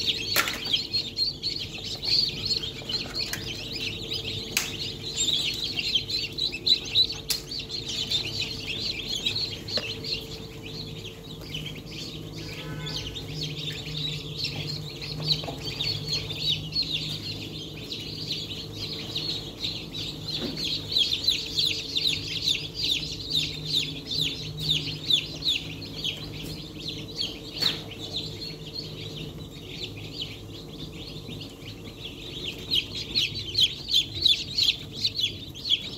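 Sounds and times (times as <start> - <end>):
chicks peeping: 0.0 - 35.9
steady low hum: 0.0 - 35.9.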